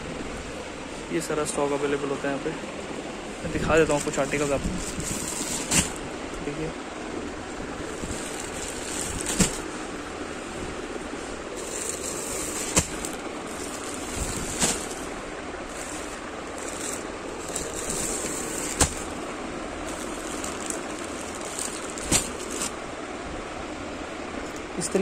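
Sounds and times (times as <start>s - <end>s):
background hiss: 0.0s - 25.0s
plastic bags crinkling: 3.8s - 6.0s, 7.8s - 9.8s, 11.5s - 19.2s, 19.8s - 22.8s.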